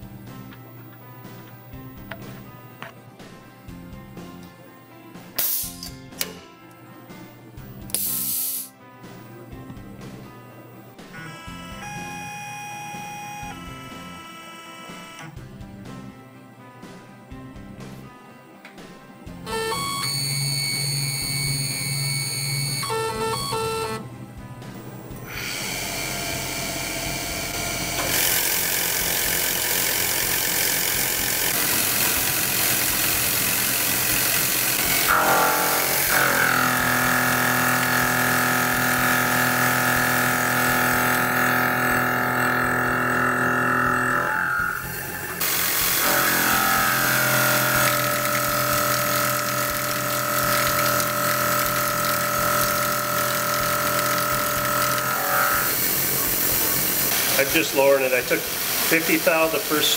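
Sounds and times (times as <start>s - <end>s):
milling machine cutting metal: 25.2s - 59.9s.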